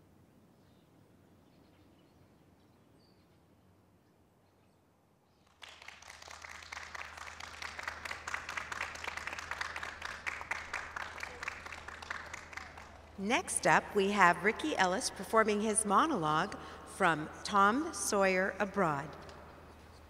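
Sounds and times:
audience clapping: 0:05.5 - 0:13.7
low steady hum: 0:07.2 - 0:20.0.

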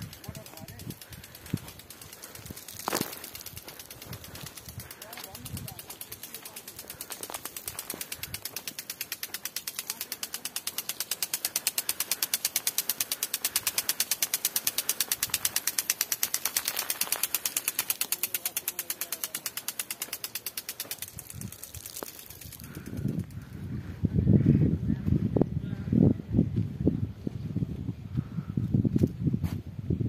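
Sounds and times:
water spray hiss: 0:00.0 - 0:22.8
sprinkler arm ticking: 0:00.0 - 0:23.6.

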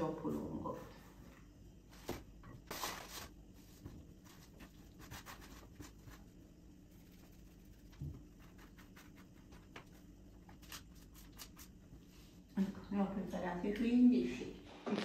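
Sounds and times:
pastry sheet rustling: 0:01.9 - 0:06.3
hands rubbing dough: 0:01.9 - 0:12.4.

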